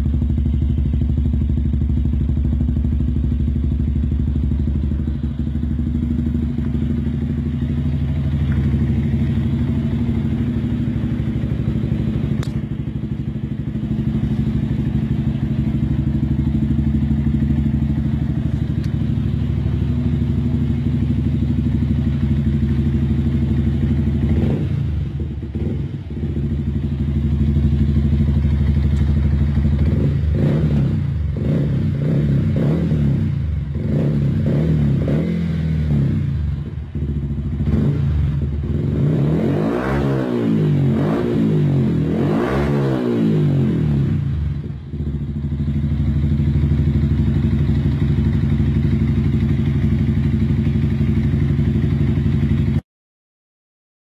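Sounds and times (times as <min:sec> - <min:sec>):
motorcycle engine idling and revving: 0:00.0 - 0:52.8.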